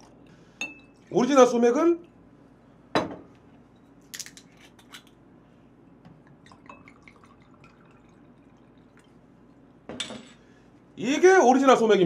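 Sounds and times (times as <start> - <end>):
glass clinking: 0.6 - 1.0, 6.5 - 8.2
liquid trickling and dripping: 6.2 - 9.7.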